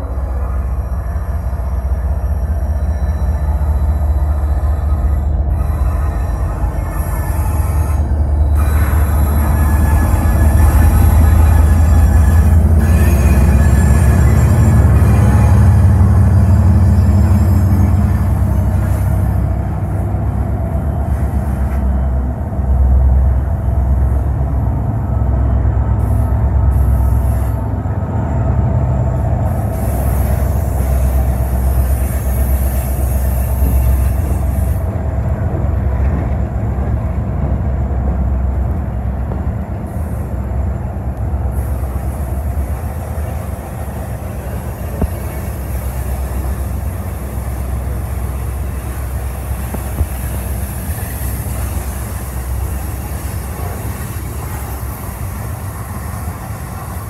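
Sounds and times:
diesel locomotive engine rumble: 0:00.0 - 0:57.0
train wheels rolling on rail: 0:00.0 - 0:57.0.

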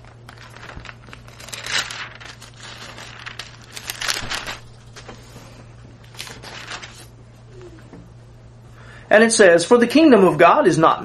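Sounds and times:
thin pages rustling: 0:00.0 - 0:07.1
steady low hum: 0:00.0 - 0:11.0.

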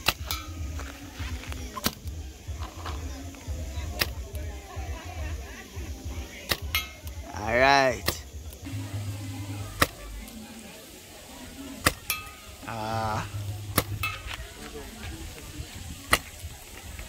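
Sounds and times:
paintball pinging metal target: 0:00.0 - 0:00.6, 0:06.5 - 0:07.2, 0:09.7 - 0:10.0, 0:11.8 - 0:12.5, 0:13.7 - 0:14.4
paintball marker shots popping: 0:01.7 - 0:02.1, 0:04.0 - 0:04.2, 0:06.5 - 0:07.2, 0:09.8 - 0:10.0, 0:11.8 - 0:12.2, 0:13.7 - 0:14.4.

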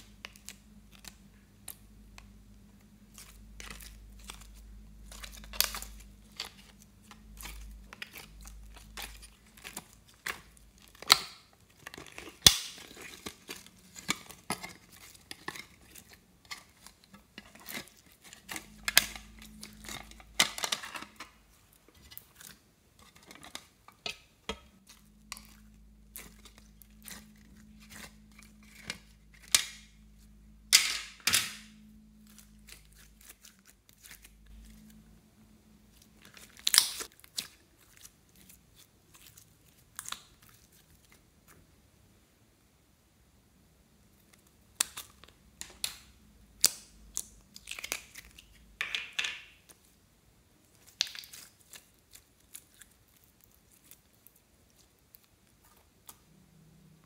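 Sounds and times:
faint low hum: 0:00.0 - 0:48.9, 0:49.5 - 0:57.0.

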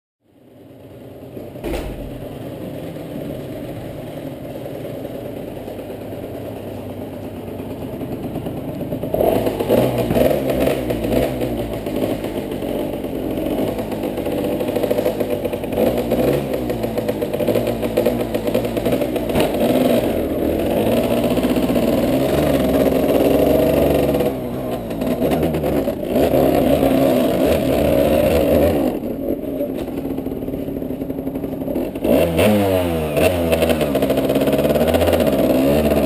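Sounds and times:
two-stroke engine idling: 0:00.3 - 0:36.0
engine knock: 0:01.2 - 0:32.6, 0:33.3 - 0:36.0.

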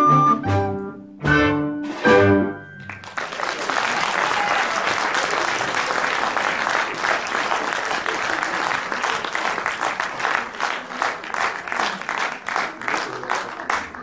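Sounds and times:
music chords: 0:00.0 - 0:02.9
audience applause: 0:02.8 - 0:14.0.

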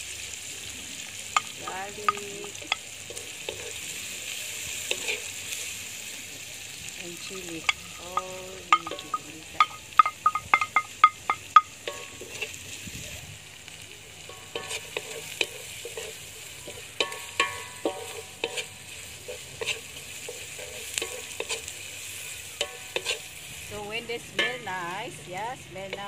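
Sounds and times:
food sizzling in oil: 0:00.0 - 0:26.0
wooden spatula scraping wok: 0:01.4 - 0:05.8, 0:07.2 - 0:13.3, 0:14.2 - 0:24.8
sharp ringing taps on plate: 0:09.6 - 0:11.7.

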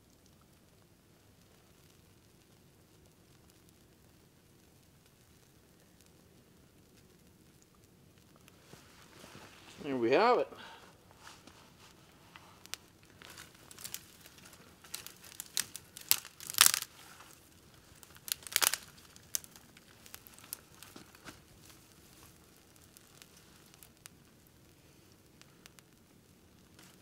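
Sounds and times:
crinkling and tearing: 0:11.2 - 0:24.4, 0:26.6 - 0:27.0
sharp snaps: 0:12.6 - 0:17.4, 0:18.0 - 0:21.3.

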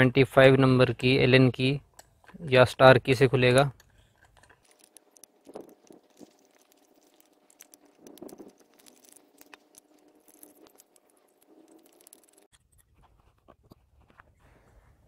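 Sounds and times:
socket wrench clicking and scraping: 0:03.5 - 0:12.8.

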